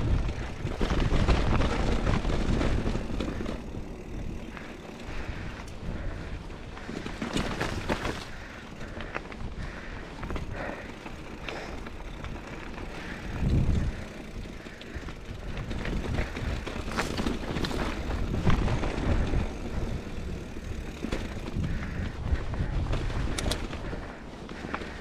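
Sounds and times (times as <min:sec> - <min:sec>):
bike clicks and rattles: 0:00.0 - 0:25.0
tyres crunching over rocks: 0:00.3 - 0:25.0
wind on microphone: 0:13.0 - 0:14.6.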